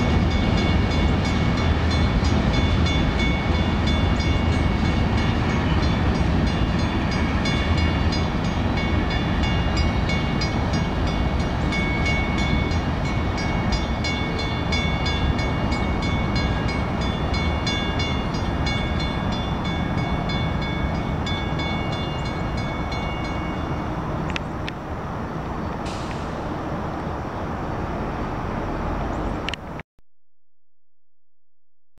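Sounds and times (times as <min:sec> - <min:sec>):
crossing bell ringing: 0:00.0 - 0:23.9
freight cars rumbling past: 0:00.0 - 0:29.8.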